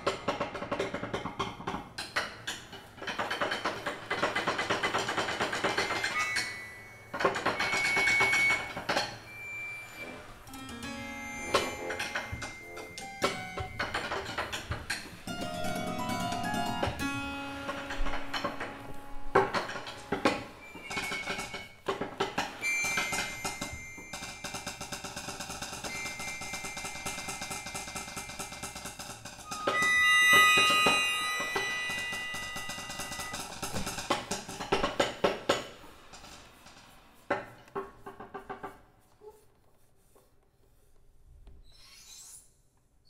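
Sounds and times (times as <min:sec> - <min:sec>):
percussive taps and knocks: 0:00.0 - 0:06.2
held high tones: 0:05.9 - 0:14.0, 0:22.5 - 0:34.2
cellos piano and accordion music: 0:10.2 - 0:14.0, 0:15.4 - 0:21.3, 0:29.5 - 0:33.5.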